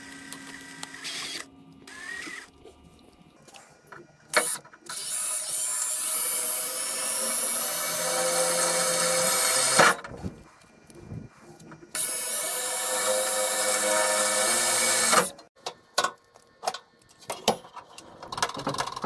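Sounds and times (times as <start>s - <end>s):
cordless drill boring into metal: 0.6s - 2.5s, 4.4s - 10.0s, 12.0s - 15.4s.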